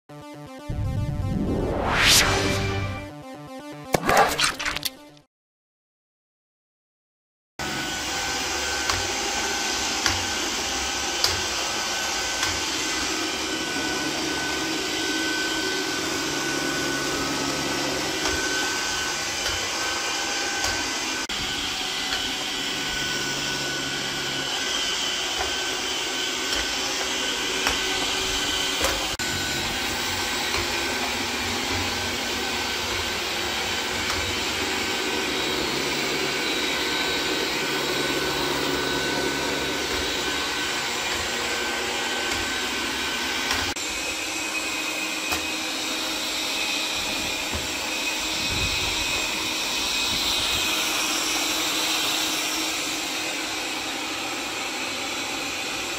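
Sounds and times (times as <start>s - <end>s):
robot vacuum fan whir: 7.6s - 55.9s.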